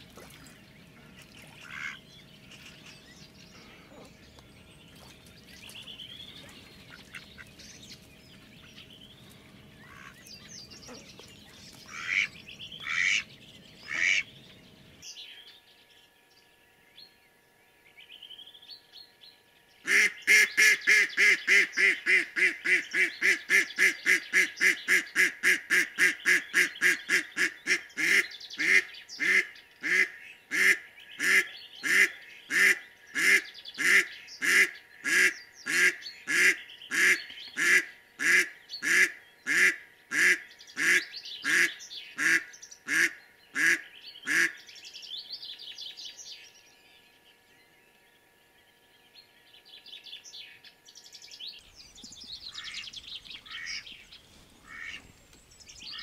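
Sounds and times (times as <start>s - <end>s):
faint songbirds calling: 0.0s - 56.0s
duck quacking: 1.6s - 2.0s, 11.9s - 14.3s, 19.9s - 44.6s, 53.4s - 53.9s, 54.6s - 55.0s.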